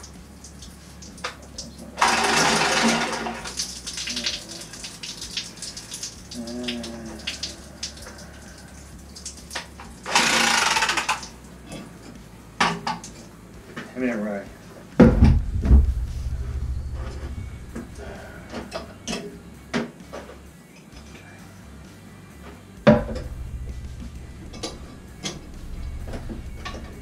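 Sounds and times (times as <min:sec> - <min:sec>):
low steady hum: 0:14.8 - 0:19.7, 0:21.0 - 0:27.0
water rushing out: 0:15.2 - 0:18.8, 0:22.9 - 0:27.0.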